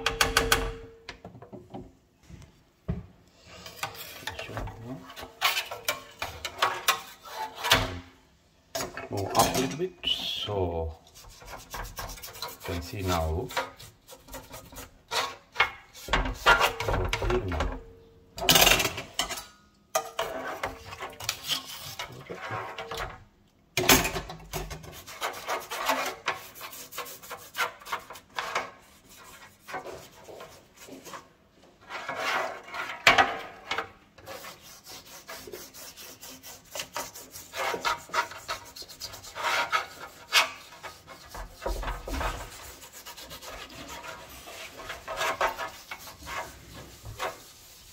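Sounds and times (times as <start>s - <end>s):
brush scrubbing metal mesh filter: 10.1s - 15.4s, 24.8s - 33.0s, 34.2s - 47.9s.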